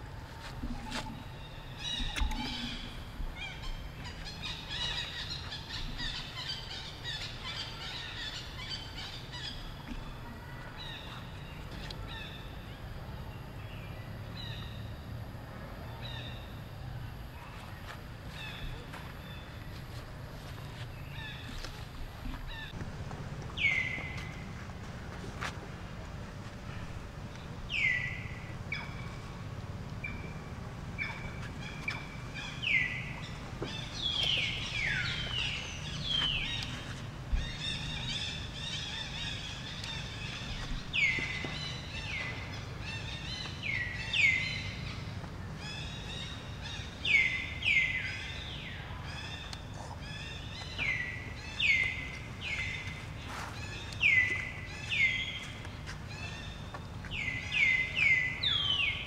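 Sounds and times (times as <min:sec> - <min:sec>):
birds chirping: 0:00.0 - 0:59.0
low background rumble: 0:00.0 - 0:59.0.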